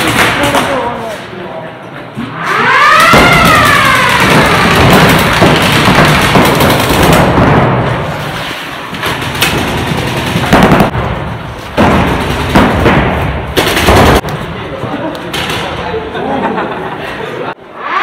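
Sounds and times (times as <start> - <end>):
paintball markers firing: 3.1 - 7.6.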